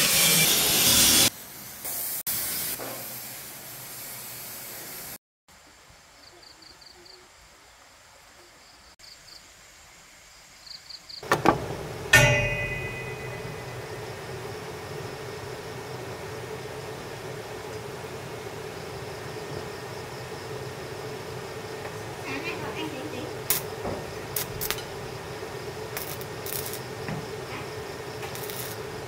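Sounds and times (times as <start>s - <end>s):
power tool running: 0.0s - 1.3s
metal clang: 11.2s - 14.2s.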